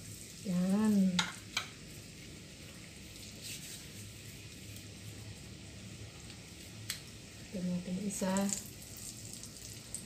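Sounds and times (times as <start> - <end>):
food deep-frying in oil: 0.0 - 10.0.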